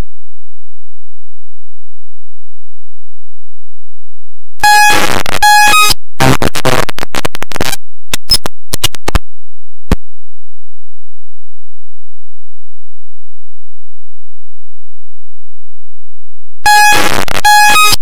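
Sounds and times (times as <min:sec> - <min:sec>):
buzzing glitch noise: 0:04.6 - 0:09.2, 0:16.7 - 0:18.0
stuttering glitch noise: 0:04.6 - 0:09.2, 0:16.7 - 0:18.0
sharp clicks: 0:05.7 - 0:09.2.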